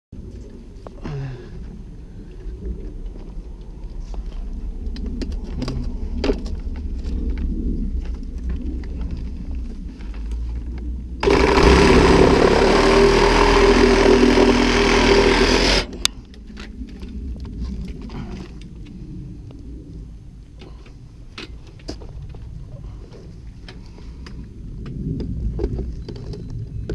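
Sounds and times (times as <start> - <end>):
reciprocating saw cutting pipe: 11.2 - 16.1.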